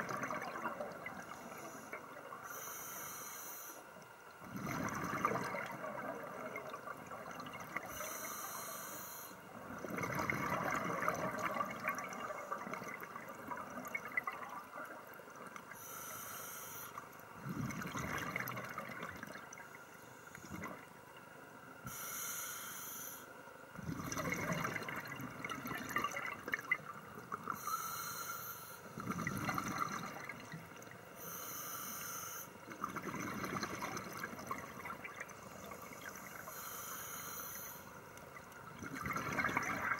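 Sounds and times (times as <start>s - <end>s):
regulator inhale hiss: 1.2s - 4.0s, 7.8s - 9.5s, 15.7s - 17.0s, 21.8s - 23.4s, 27.5s - 29.0s, 31.2s - 32.6s, 35.5s - 38.1s.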